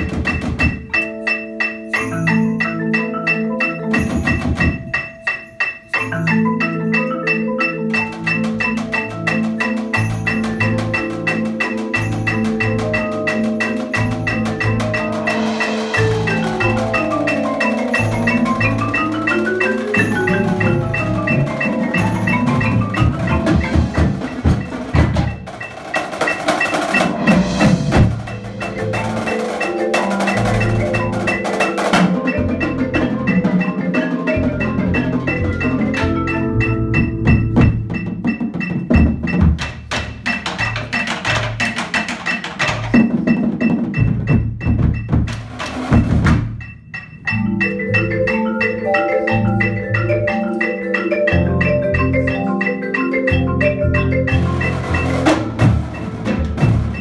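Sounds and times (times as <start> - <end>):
marimbas and xylophones: 0.0 - 57.0
bass drums and drum kit: 12.0 - 19.4, 20.0 - 33.6, 34.4 - 47.9, 53.8 - 57.0.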